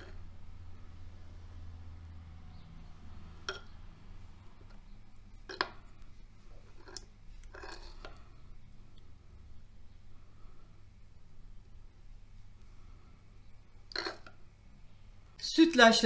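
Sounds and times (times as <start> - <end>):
low steady hum: 0.0 - 16.0
teaspoon clinking on clay bowl: 3.4 - 3.8.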